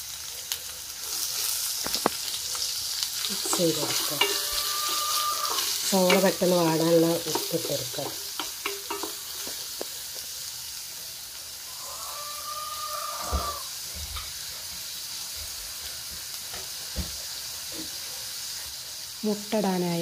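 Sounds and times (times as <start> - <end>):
onions sizzling in pan: 0.0 - 20.0
hen calling: 3.6 - 6.4, 11.7 - 13.7.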